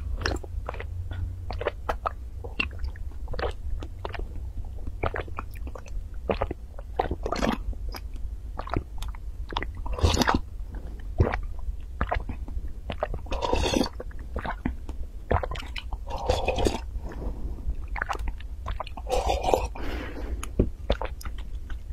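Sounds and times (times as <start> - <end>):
swallowing: 0.1 - 21.9
slurping sips: 13.3 - 14.0, 16.0 - 18.2, 19.0 - 21.1
wet mouth clicks: 20.4 - 21.9.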